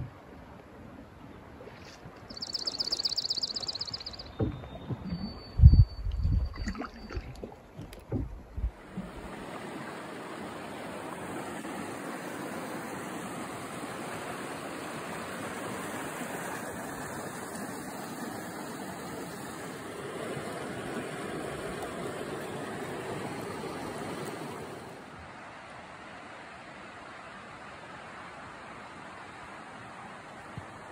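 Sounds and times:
water rushing over rocks: 0:03.5 - 0:26.9.

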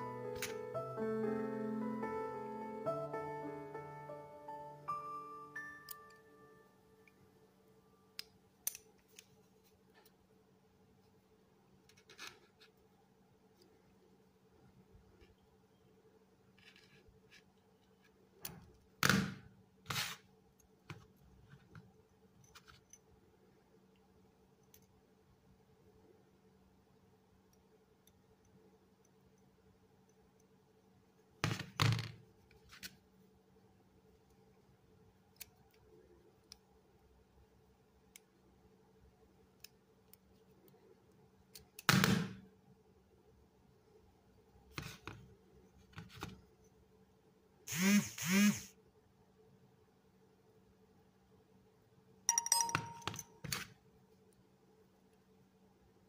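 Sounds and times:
metallic clicks of bending wire: 0:08.2 - 0:09.3.

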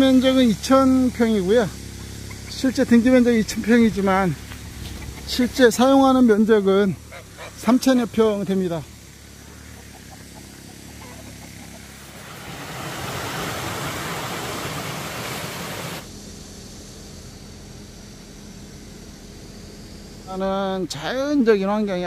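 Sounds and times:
faint outdoor background: 0:00.0 - 0:22.0
stream rushing over rocks: 0:12.0 - 0:16.0.

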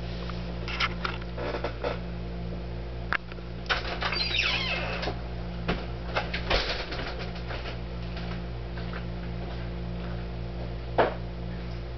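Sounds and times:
low electrical hum: 0:00.0 - 0:11.9.

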